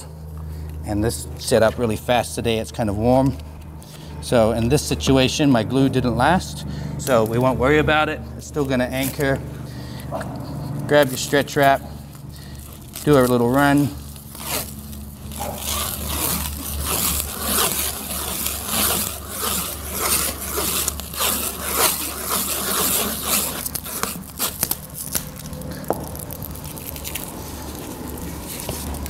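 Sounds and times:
plastic wrap crinkling pulls: 0:10.9 - 0:29.0.

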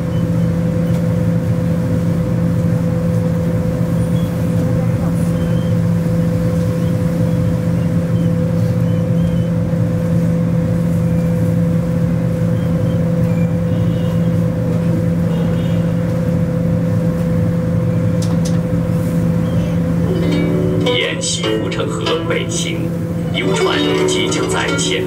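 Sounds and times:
boat motor humming: 0:19.9 - 0:25.0.

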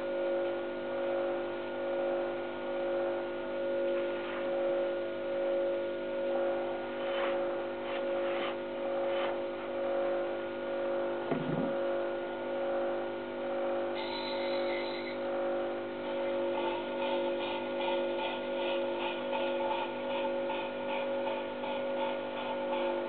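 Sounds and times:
tool scraping spinning wood: 0:06.7 - 0:09.8
low knock: 0:11.3 - 0:11.8.

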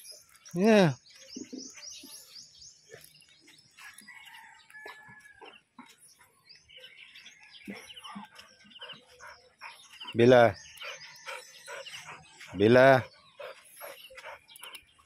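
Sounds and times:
faint bird calls: 0:07.6 - 0:15.0.

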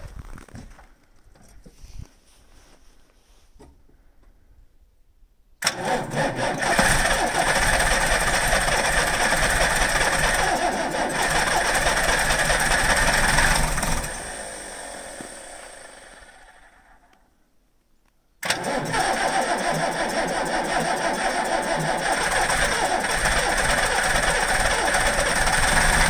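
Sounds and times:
diesel engine cranking: 0:05.6 - 0:17.1, 0:18.4 - 0:26.0.

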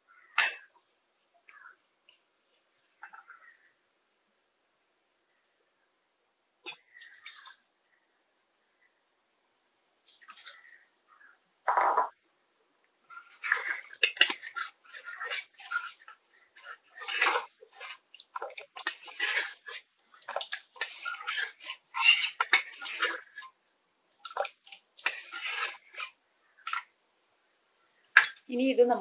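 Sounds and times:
water pouring and splashing: 0:13.2 - 0:23.5, 0:24.1 - 0:26.8.

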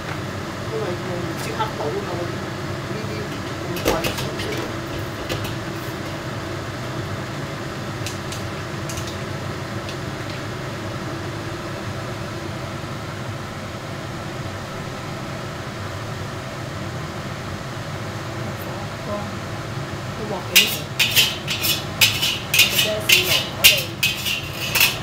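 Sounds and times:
gas burner: 0:00.0 - 0:25.0
kitchen fan humming: 0:00.0 - 0:25.0
wok clicking on burner grate: 0:08.0 - 0:10.5, 0:20.6 - 0:25.0.

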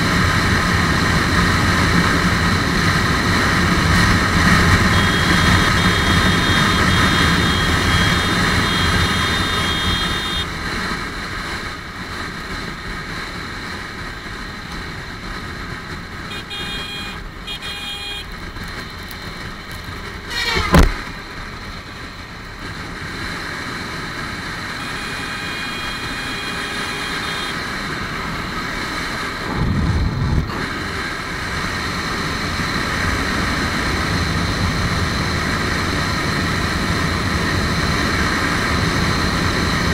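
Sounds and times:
motorcycle engine at high speed: 0:00.0 - 0:39.9
wind rushing over microphone: 0:28.1 - 0:39.9
loud whoosh of passing truck: 0:28.7 - 0:32.6
low rumble: 0:29.4 - 0:30.5.

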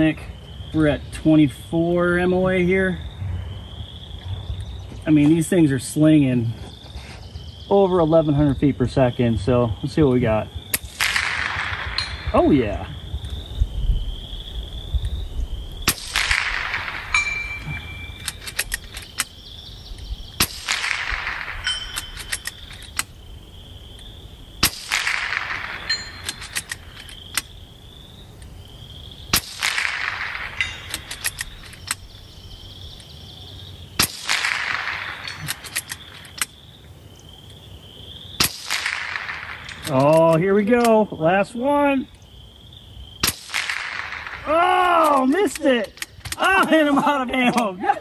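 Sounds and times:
air rifle shots: 0:10.6 - 0:12.8, 0:15.8 - 0:19.4, 0:20.3 - 0:23.2, 0:24.6 - 0:27.6, 0:29.3 - 0:32.2, 0:34.0 - 0:36.6, 0:38.4 - 0:41.0, 0:43.2 - 0:46.4
faint high chirping: 0:16.6 - 0:20.6, 0:30.1 - 0:33.9.

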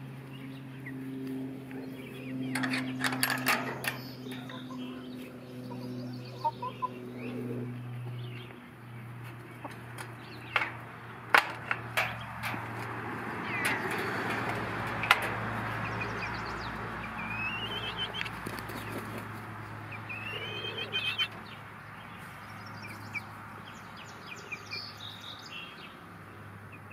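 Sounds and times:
chicks clucking and peeping: 0:00.2 - 0:26.9
sharp clicks and knocks: 0:02.5 - 0:04.7, 0:09.6 - 0:15.9.

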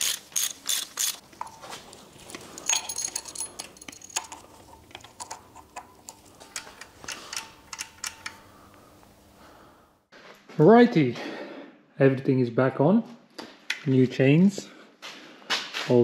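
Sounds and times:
metal chain and tools clinking: 0:00.0 - 0:05.9.

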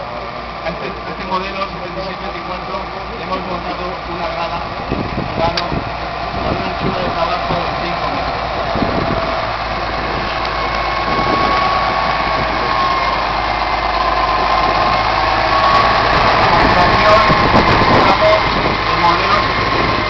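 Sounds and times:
tractor diesel engine idling: 0:00.0 - 0:20.0.

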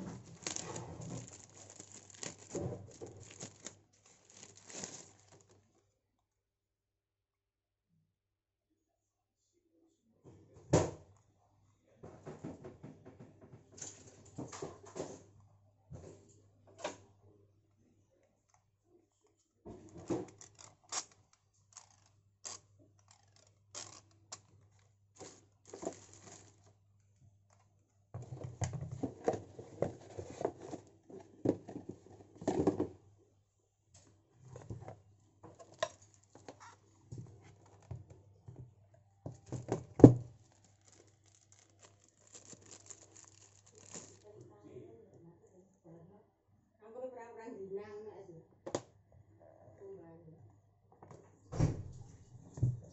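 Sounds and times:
plastic parts clicking and knocking: 0:00.0 - 0:05.4, 0:19.8 - 0:26.6.

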